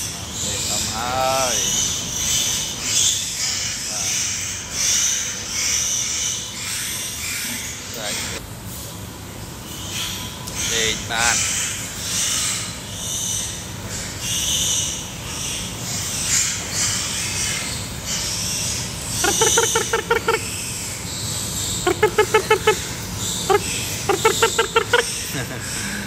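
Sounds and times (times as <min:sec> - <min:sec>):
background hum and hiss: 0:00.0 - 0:26.0
animal's rapid pulsed calls: 0:19.2 - 0:20.6, 0:21.6 - 0:25.4.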